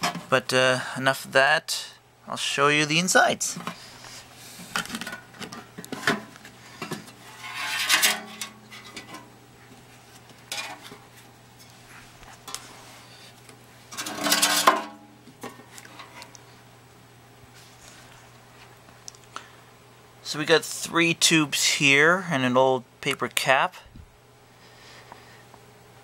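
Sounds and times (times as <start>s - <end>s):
metal scraping: 6.8s - 9.2s.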